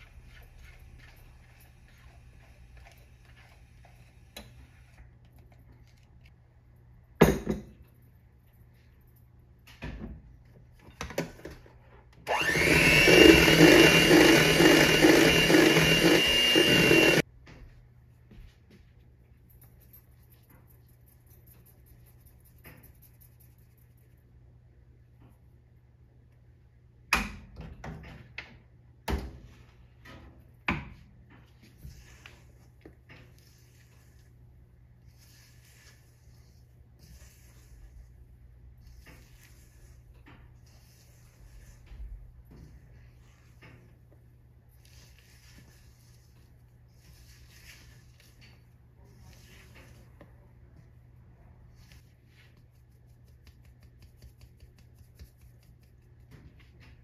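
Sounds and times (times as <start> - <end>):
kitchenware knocking on counter: 7.2 - 7.7.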